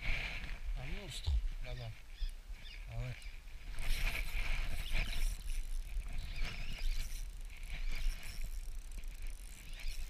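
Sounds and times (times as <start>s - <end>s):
fishing reel whirring and clicking: 3.2s - 10.0s.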